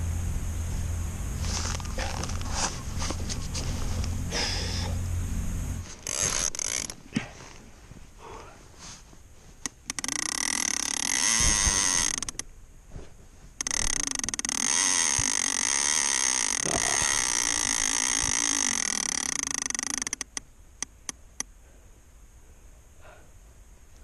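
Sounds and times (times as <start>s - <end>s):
fishing reel clicker buzzing: 5.9s - 7.0s, 9.7s - 12.4s, 13.6s - 21.2s.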